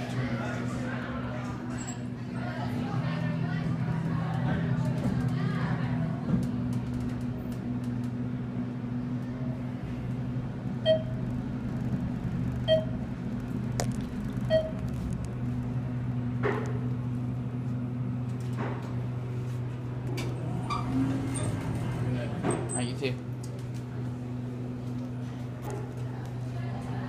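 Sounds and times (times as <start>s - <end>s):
elevator hum: 0.0s - 27.0s
short electronic beeps: 10.8s - 11.2s, 12.7s - 13.0s, 14.5s - 14.8s.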